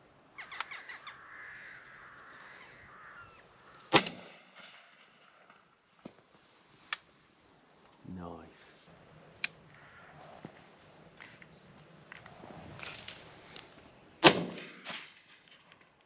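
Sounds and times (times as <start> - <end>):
faint sharp clicks: 0.4 - 0.8, 6.9 - 7.1, 9.4 - 9.8
crows cawing: 0.4 - 5.2, 9.7 - 10.7
shotgun shot with echo: 3.9 - 4.8, 14.2 - 15.2.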